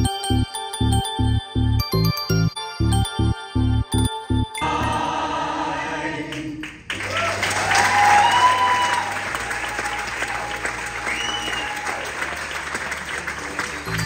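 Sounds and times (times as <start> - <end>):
cast singing in chorus: 4.6 - 6.9
audience applause and cheers: 6.9 - 14.0.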